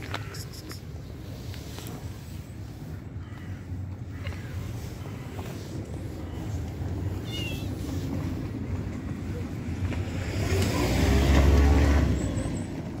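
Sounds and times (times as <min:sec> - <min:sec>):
motor vehicle passing by: 0:07.6 - 0:13.0.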